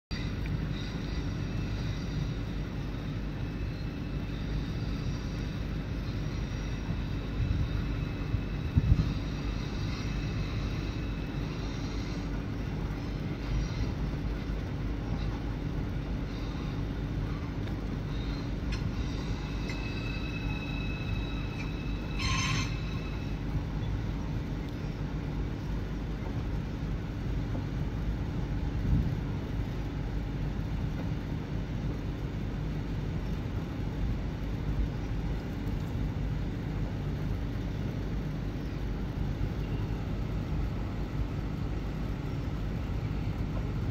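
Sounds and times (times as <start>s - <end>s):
faint high whine: 0.1s - 26.5s, 36.5s - 43.9s
train rumbling on rails: 0.1s - 43.9s.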